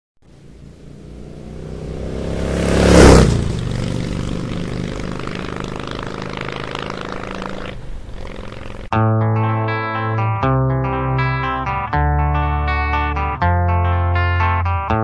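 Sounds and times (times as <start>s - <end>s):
engine droning: 0.2s - 8.9s.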